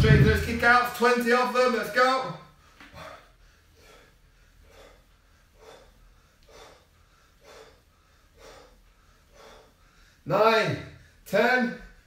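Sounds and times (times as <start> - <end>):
man breathing hard: 2.5 - 10.3.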